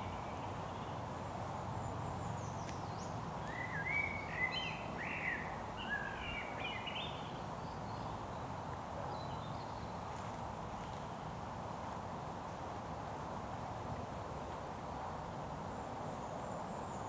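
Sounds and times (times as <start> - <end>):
songbird singing whistled notes: 0.0 - 1.0, 1.9 - 8.4
steady background hiss: 0.0 - 17.0.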